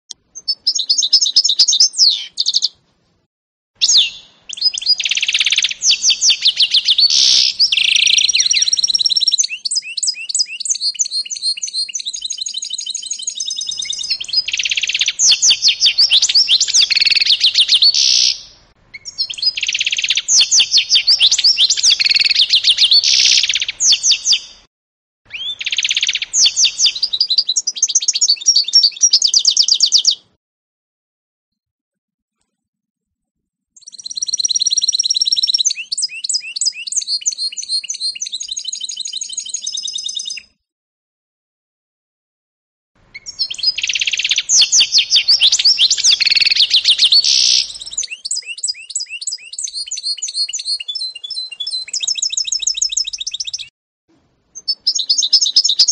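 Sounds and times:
bird singing high trills: 0.3 - 2.8, 3.8 - 24.6, 25.3 - 30.2, 33.8 - 40.6, 43.1 - 53.7, 54.6 - 55.9.

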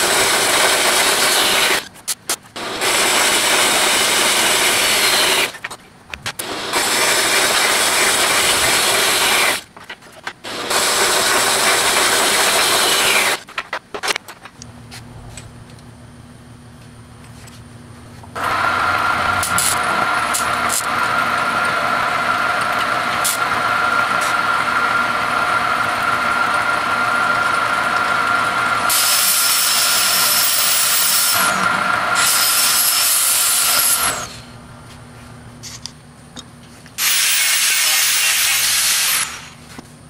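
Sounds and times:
metal lathe whining: 10.5 - 13.4, 18.4 - 34.3
harsh hiss: 37.0 - 39.6.

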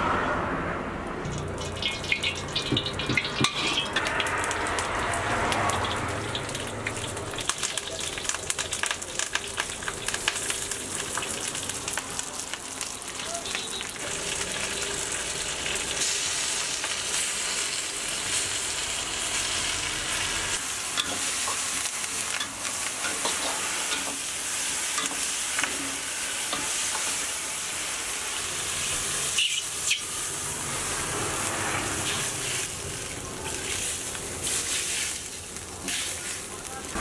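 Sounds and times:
food sizzling in a wok: 1.3 - 37.0
metal ladle scraping wok: 1.6 - 7.0, 28.8 - 36.4.

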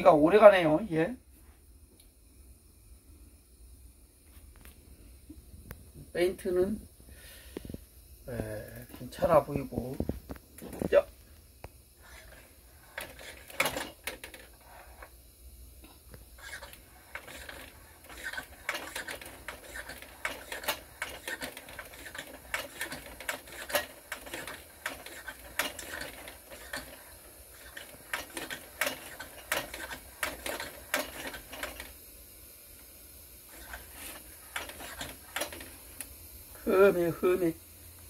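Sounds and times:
hand pump clicking strokes: 12.0 - 15.1, 16.4 - 32.0, 33.5 - 36.1.

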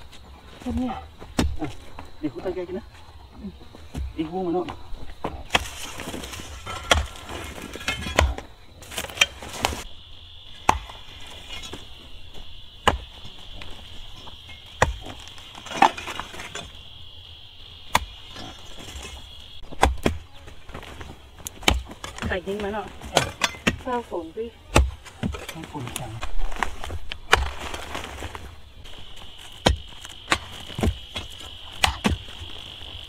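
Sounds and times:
high insect buzz: 8.5 - 23.2, 25.6 - 33.0
hoes striking hard clay: 19.6 - 20.2, 21.4 - 24.0, 24.7 - 26.3, 29.6 - 32.4.

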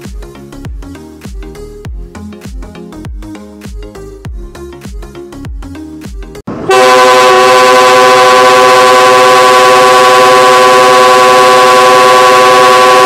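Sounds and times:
locomotive air horn chord: 6.5 - 13.0.

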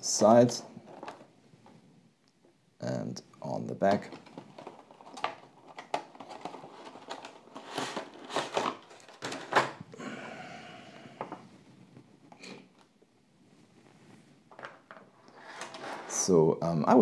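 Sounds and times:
packaging crinkling and rustling: 0.8 - 1.8, 3.8 - 9.8
plastic tray sliding scrape: 6.6 - 9.4, 15.3 - 16.3.

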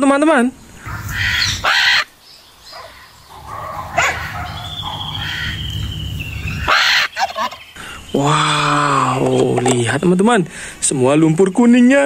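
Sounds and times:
harsh animal calls: 0.8 - 9.9
steady low hum: 2.6 - 8.1.

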